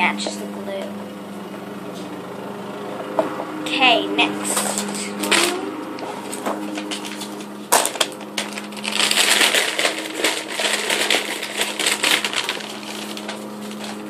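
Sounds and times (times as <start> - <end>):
paper bag crinkling: 6.7 - 14.0
pieces rattling in bag: 6.9 - 14.0.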